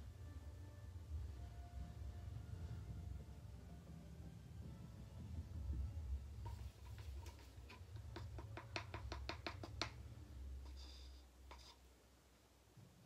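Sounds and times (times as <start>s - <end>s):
stick clicking against plastic cup: 6.9s - 10.0s.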